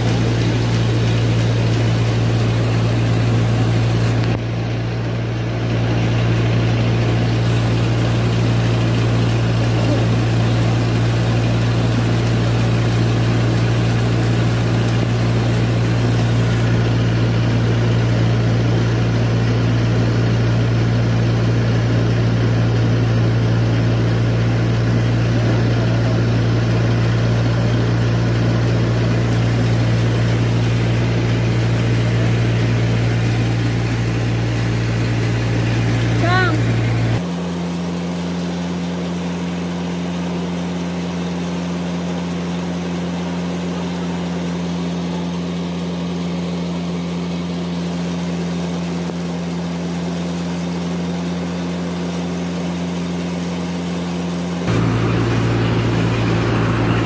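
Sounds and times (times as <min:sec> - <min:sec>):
rice mill machinery droning: 0:00.0 - 0:57.0.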